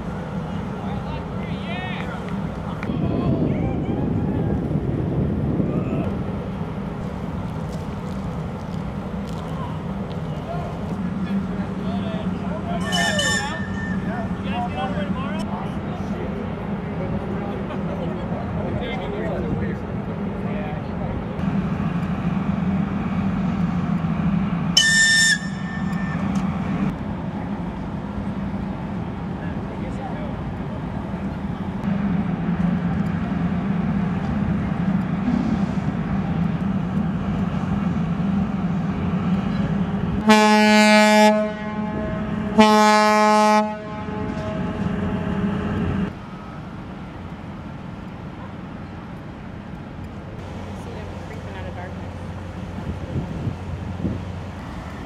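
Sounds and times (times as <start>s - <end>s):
ship engines rumbling: 0.0s - 55.0s
shrill whistle blast: 12.8s - 14.2s, 24.8s - 26.3s.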